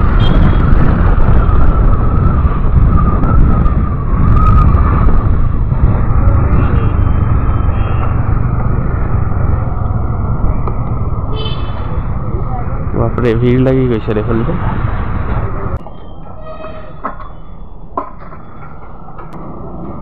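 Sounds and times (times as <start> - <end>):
wind rushing over microphone: 0.0 - 15.8.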